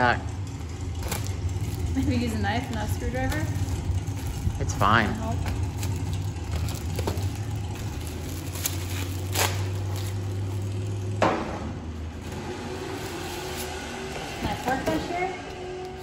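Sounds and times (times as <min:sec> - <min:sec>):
steady low hum: 0:00.0 - 0:16.0
plastic packaging crinkling: 0:05.3 - 0:11.0.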